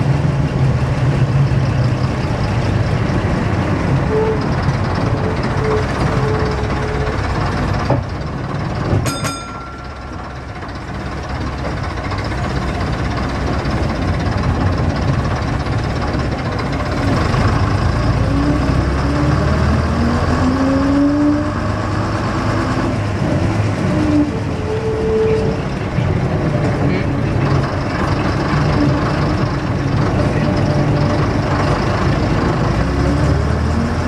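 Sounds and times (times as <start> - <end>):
bus engine rumbling: 0.0 - 34.0
brief metallic ting: 9.1 - 10.0.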